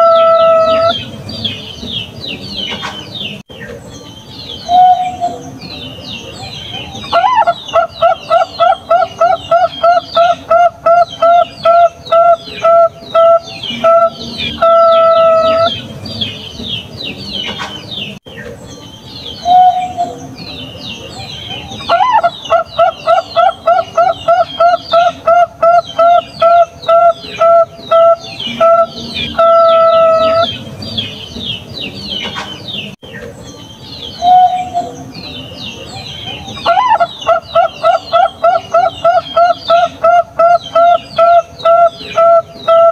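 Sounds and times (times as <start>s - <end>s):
dove cooing: 0.0s - 1.1s, 6.8s - 15.9s, 21.5s - 30.6s, 36.2s - 42.9s
small birds chirping: 0.0s - 42.9s.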